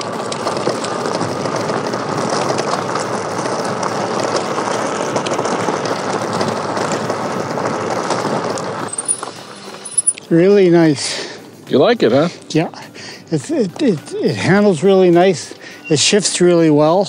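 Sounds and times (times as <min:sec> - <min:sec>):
fine crackling: 0:00.0 - 0:10.3.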